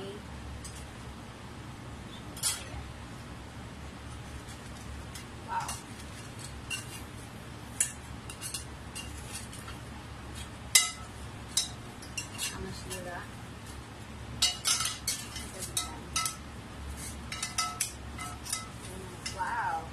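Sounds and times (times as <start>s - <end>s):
metal utensils clinking in glass bowl: 14.4s - 16.4s, 17.3s - 19.5s.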